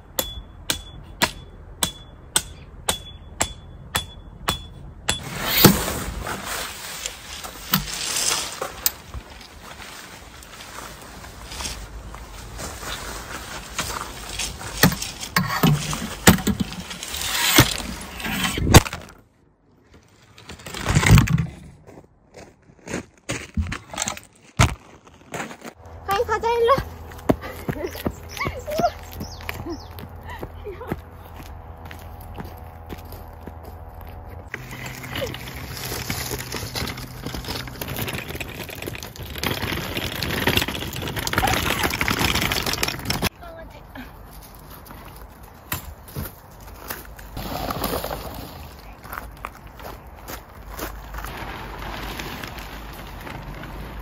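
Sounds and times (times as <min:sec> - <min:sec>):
tent fabric rustling on gravel: 0:05.2 - 0:18.6, 0:34.5 - 0:43.3, 0:46.4 - 0:54.0
wagon wheels rattling on concrete: 0:34.6 - 0:43.3.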